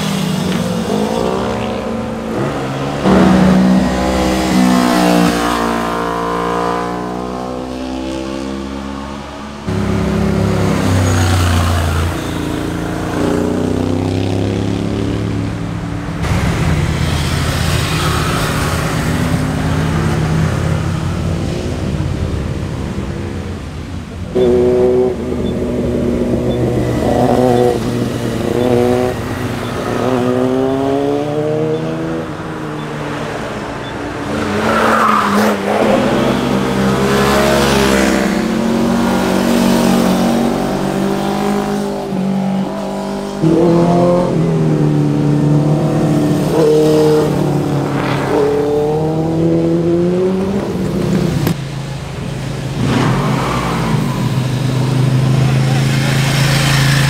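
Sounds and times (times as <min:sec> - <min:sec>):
loud motorcycle engine: 0:00.0 - 0:57.0
motorcycles accelerating past: 0:24.3 - 0:33.7, 0:34.4 - 0:51.6.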